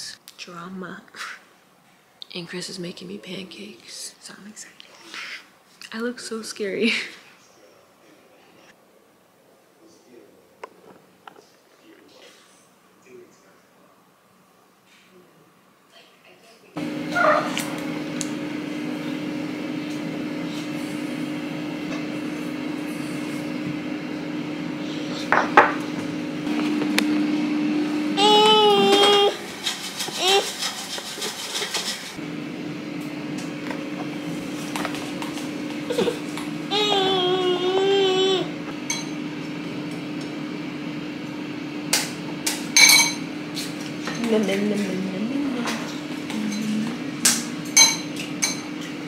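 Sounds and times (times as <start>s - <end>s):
steady low hum: 32.1s - 49.0s
dishes clattering: 42.8s - 43.3s, 45.6s - 48.7s.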